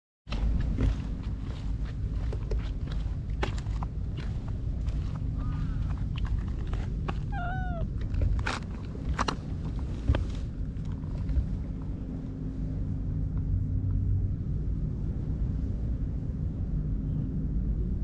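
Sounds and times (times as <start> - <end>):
cat purring: 6.1 - 8.2
cat chirps: 7.1 - 7.9.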